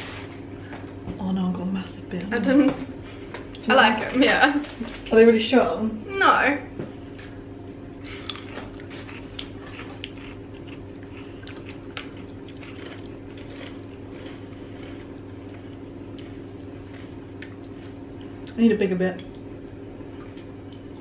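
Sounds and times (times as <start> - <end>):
crisps crunching: 8.1 - 18.4.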